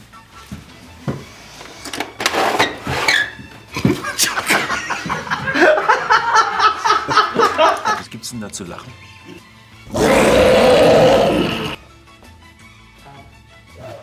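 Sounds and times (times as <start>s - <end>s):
laughter: 3.7s - 8.1s.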